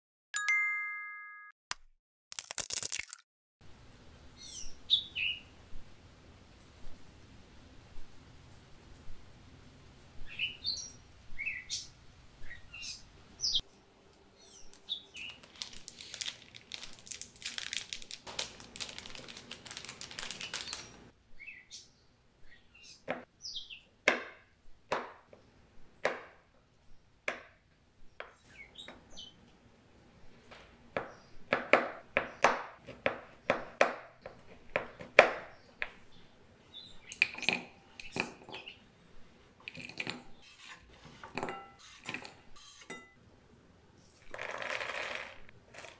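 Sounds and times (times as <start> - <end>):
birds chirping: 4.4 - 5.6, 10.2 - 15.5, 20.4 - 23.9, 34.8 - 39.0
knife chopping chocolate on wood: 31.0 - 35.5.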